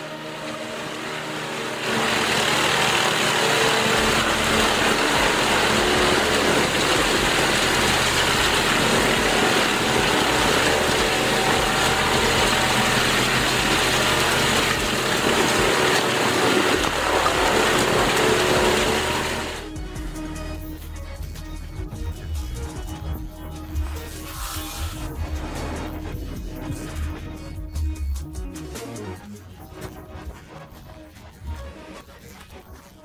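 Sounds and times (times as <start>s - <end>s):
grinder shredding wood: 0.0s - 19.7s, 24.1s - 25.1s.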